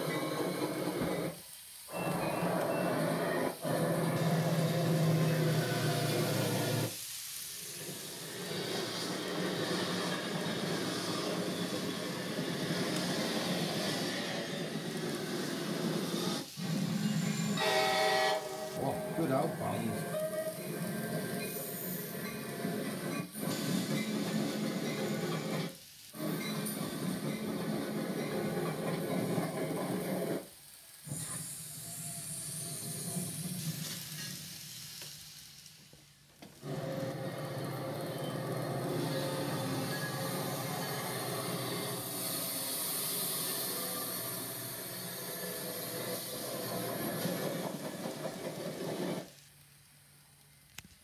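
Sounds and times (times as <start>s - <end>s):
locomotive engine drone: 0.0s - 7.0s, 7.6s - 30.5s, 36.6s - 49.3s
train rumbling with hiss: 0.0s - 51.0s
locomotive horn: 17.6s - 20.7s.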